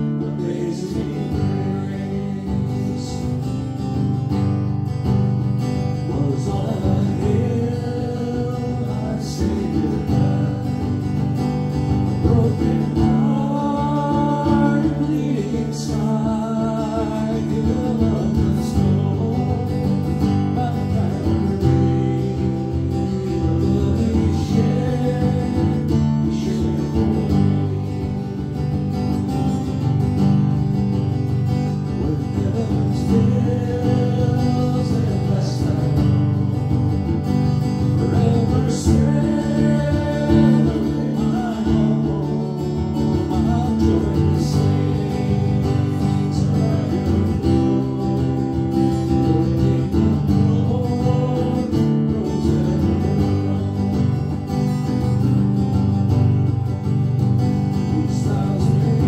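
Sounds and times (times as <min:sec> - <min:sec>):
acoustic guitar: 0:00.0 - 0:59.0
person singing a hymn: 0:00.2 - 0:03.0, 0:12.2 - 0:28.4, 0:32.0 - 0:36.3, 0:38.0 - 0:48.6.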